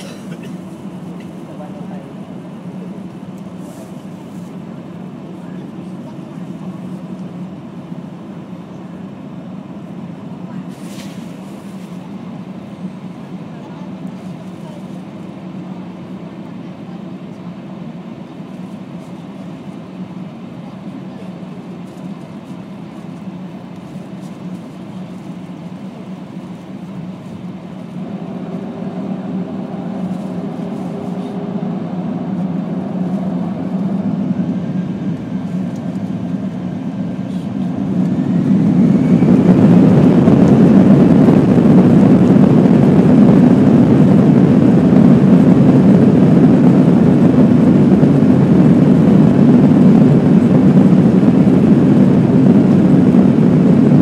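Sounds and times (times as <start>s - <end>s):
jet engines spooling up: 21.3s - 54.0s.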